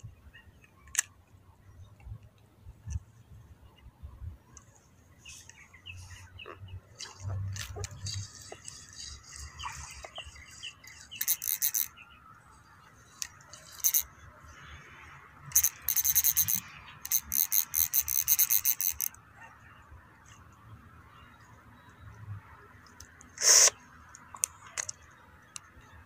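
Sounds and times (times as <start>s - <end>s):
fishing reel clicking: 7.6s - 11.9s, 13.1s - 14.1s, 15.5s - 19.2s.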